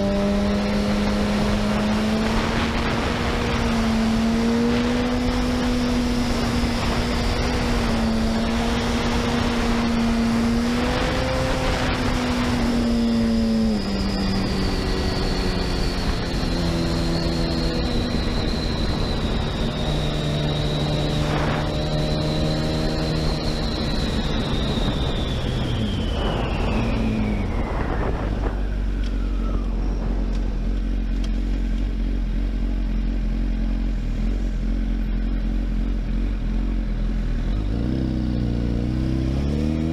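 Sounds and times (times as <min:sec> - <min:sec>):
thin high whine: 0:00.0 - 0:31.4
wind noise: 0:00.0 - 0:32.0
motorcycle engine: 0:00.0 - 0:39.9.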